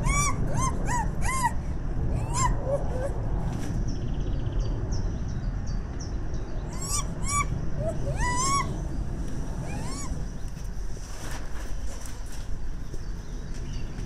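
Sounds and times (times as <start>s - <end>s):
gibbon whooping calls: 0.0s - 3.2s, 6.7s - 8.9s, 9.6s - 10.2s.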